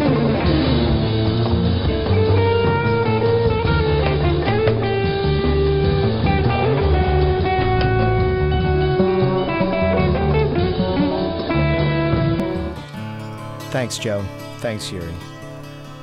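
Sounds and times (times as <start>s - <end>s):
bass line: 0.0s - 15.4s
plucked strings: 0.0s - 16.0s.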